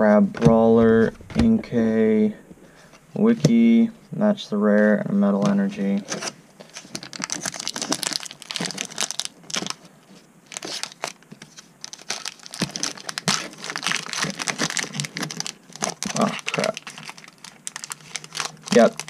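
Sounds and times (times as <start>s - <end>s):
foil wrapper crinkling: 6.1s - 19.0s.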